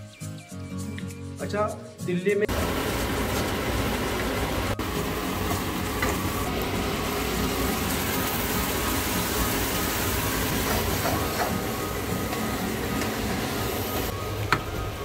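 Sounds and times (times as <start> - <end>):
food sizzling in frying pan: 2.5 - 14.1.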